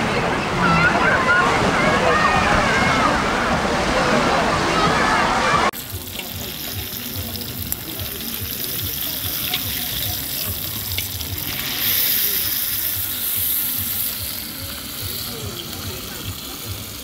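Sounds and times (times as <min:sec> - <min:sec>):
meat sizzling in an iron pan: 0:05.8 - 0:17.0.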